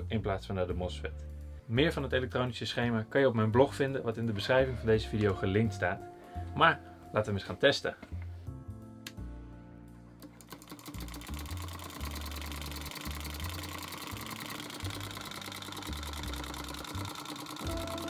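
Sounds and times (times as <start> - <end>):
solenoid engine clattering: 10.4 - 18.0.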